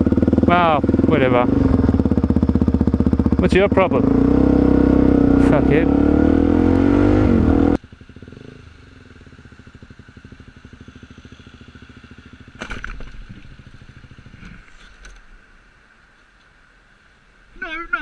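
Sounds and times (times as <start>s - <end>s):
motorcycle engine idling: 0.0s - 14.7s.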